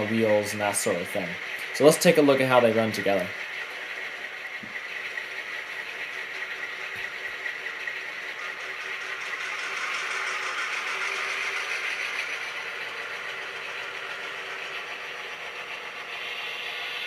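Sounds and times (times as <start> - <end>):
model locomotive diesel engine sound: 0.0 - 17.0.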